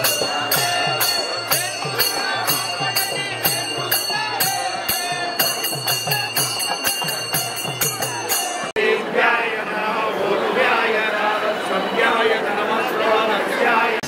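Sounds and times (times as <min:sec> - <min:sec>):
drum hits with jingling bells: 0:00.0 - 0:08.8.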